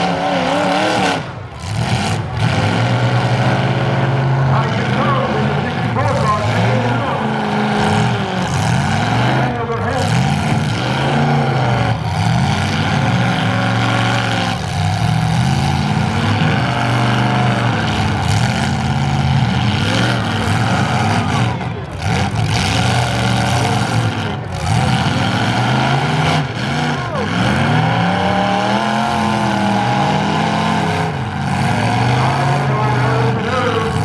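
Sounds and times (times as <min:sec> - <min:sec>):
car engines revving: 0:00.0 - 0:34.0.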